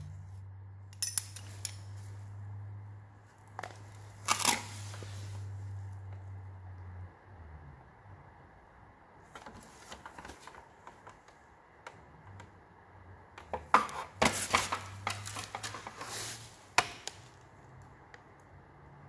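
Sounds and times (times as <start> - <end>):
plastic parts clattering and rustling: 13.4 - 17.2.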